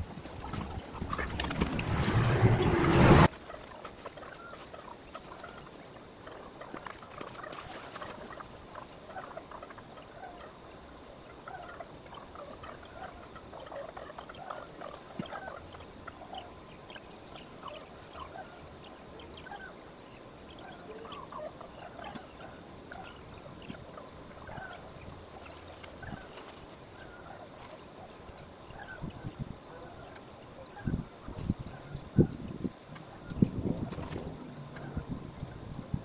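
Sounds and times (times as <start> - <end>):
birds chirping and calling: 0.0 - 3.3
faint steady background noise: 0.0 - 36.0.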